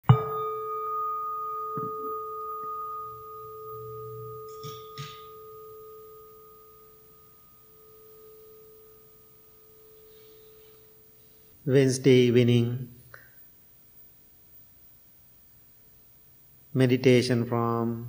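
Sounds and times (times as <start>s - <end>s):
meditation bell ringing: 0.0s - 11.6s.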